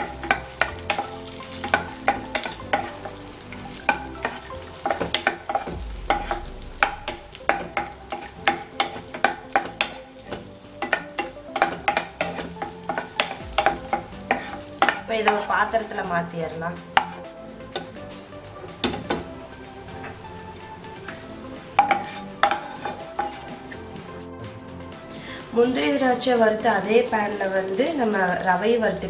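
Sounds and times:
wooden spatula scraping a pan: 0.0 - 18.0, 21.0 - 24.2
light sizzle: 0.0 - 29.0.

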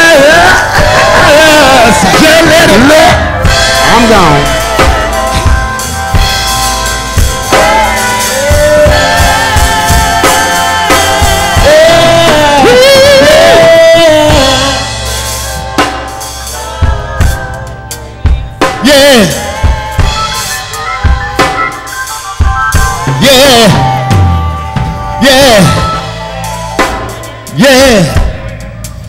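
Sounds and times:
drum kit: 0.0 - 29.0
person singing with vibrato: 6.7 - 15.4, 16.4 - 28.8.

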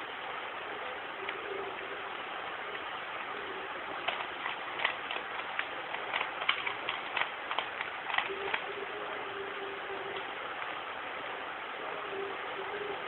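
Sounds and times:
steady hiss: 0.0 - 13.0
puzzle cube clicking: 4.0 - 8.7.

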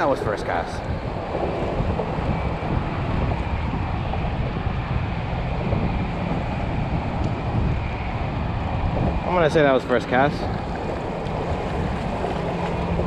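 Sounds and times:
wind buffeting microphone: 0.0 - 13.0
small waves washing: 9.6 - 13.0.

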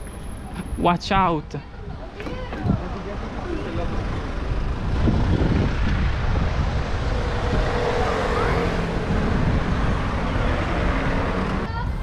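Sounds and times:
car traffic hum: 0.0 - 12.0
road noise: 0.0 - 12.0
wind rushing: 3.8 - 12.0.

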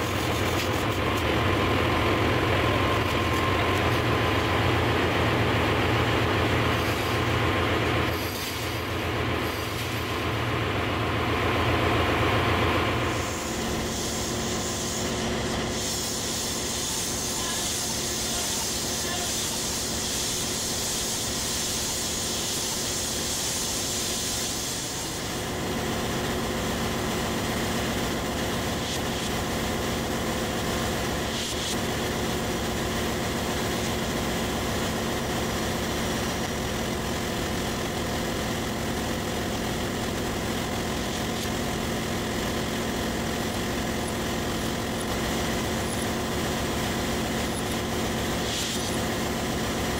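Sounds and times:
engine room machinery drone: 0.0 - 49.9
high hiss: 13.0 - 25.5.

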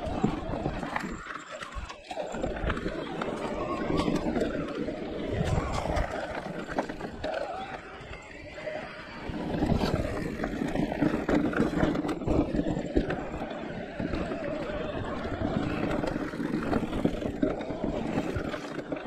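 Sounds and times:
bike rattling and knocking: 0.0 - 19.0
bike tyres rolling over ground: 0.0 - 19.0.

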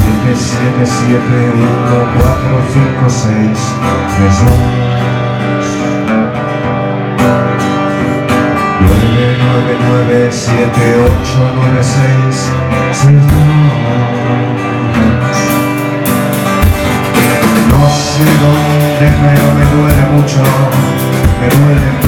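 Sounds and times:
live rock band playing: 0.0 - 22.0
drum and cymbal strikes: 16.0 - 22.0.

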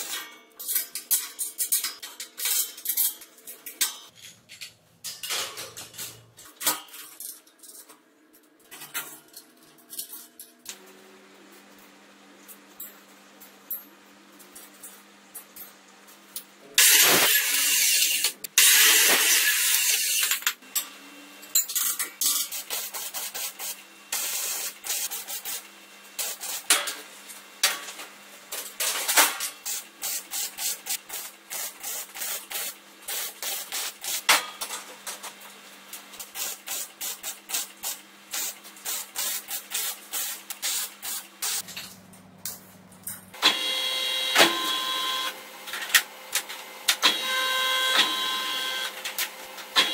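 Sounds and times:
low electrical hum: 40.0 - 43.4.

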